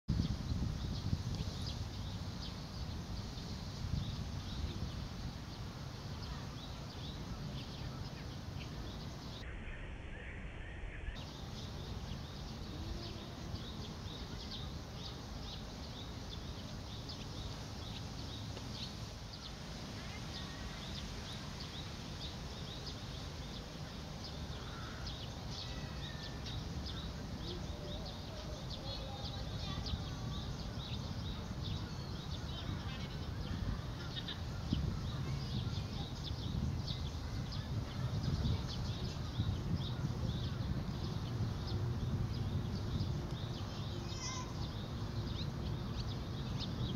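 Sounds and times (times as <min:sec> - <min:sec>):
birds chirping and calling: 0:00.1 - 0:46.9
bird trills: 0:43.6 - 0:44.9.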